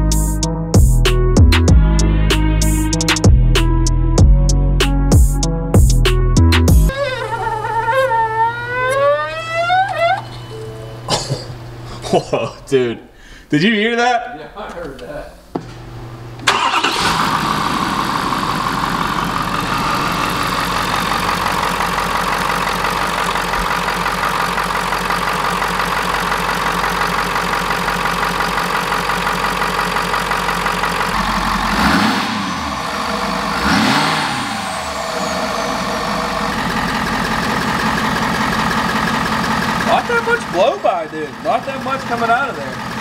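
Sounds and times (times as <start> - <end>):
diesel engine idling and revving: 16.4 - 43.0.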